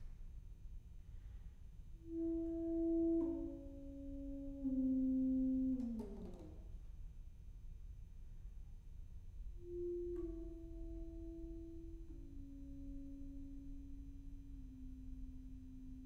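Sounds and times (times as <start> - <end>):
saxophone long held notes: 2.0 - 6.6, 9.6 - 16.0.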